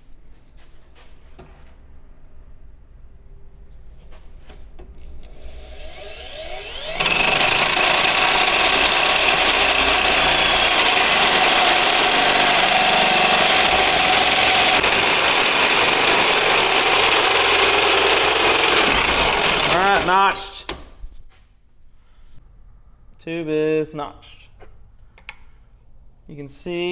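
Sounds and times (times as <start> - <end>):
drill motor whining: 5.3 - 20.2
hole saw cutting steel tube: 5.5 - 20.3.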